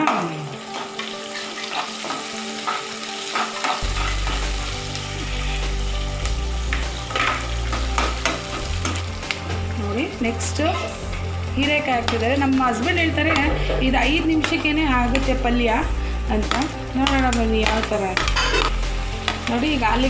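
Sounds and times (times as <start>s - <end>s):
onions sizzling in hot oil: 0.0s - 20.0s
metal spatula scraping a pan: 0.7s - 4.5s, 16.3s - 19.6s.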